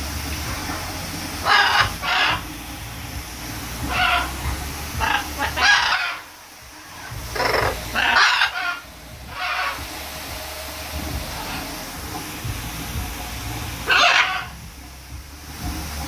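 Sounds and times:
steady low hum: 0:00.0 - 0:16.0
macaw rough calls: 0:01.4 - 0:02.5, 0:03.9 - 0:04.4, 0:05.0 - 0:06.3, 0:07.0 - 0:09.8, 0:13.8 - 0:14.6.

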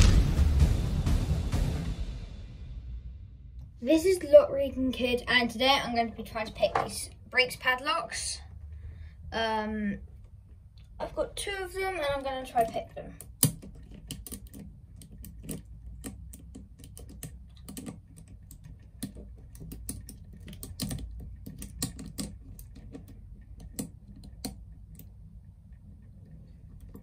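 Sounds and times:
lock picks clicking in padlock: 0:13.2 - 0:25.1.

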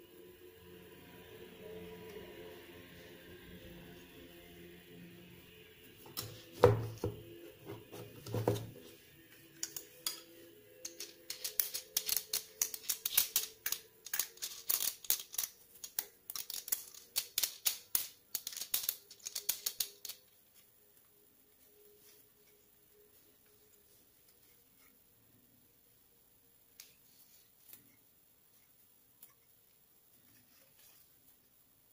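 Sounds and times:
metallic clicks and rattles: 0:10.8 - 0:20.2.

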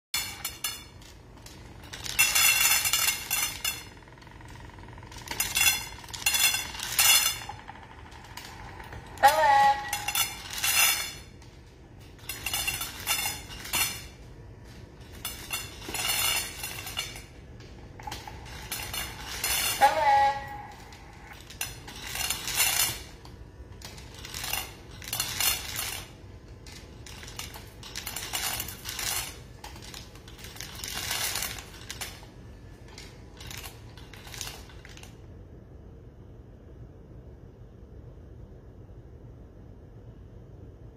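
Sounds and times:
kibble rattling into metal bowls: 0:00.2 - 0:17.4, 0:18.0 - 0:32.3, 0:32.9 - 0:35.1.

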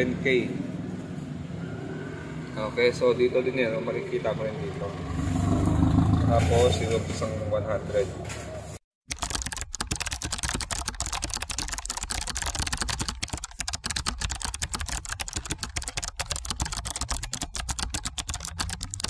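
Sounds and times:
fast keyboard typing clicks: 0:09.1 - 0:19.0.

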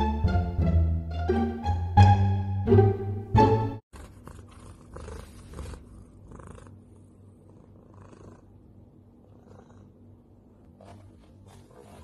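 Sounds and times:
cat purring: 0:04.0 - 0:10.6.

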